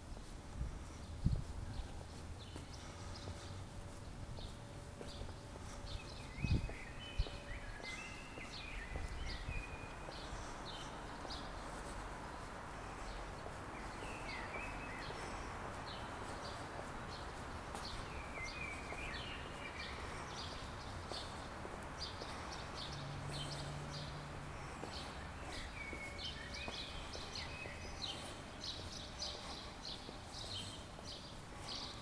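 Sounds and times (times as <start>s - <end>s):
footsteps on stone pavement: 0.0s - 32.0s
low traffic hum: 0.0s - 32.0s
small birds chirping: 0.0s - 32.0s.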